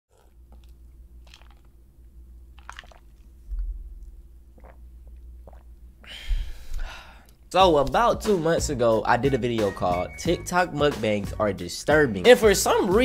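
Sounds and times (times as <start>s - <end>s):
man drinking and chewing: 0.1s - 8.0s.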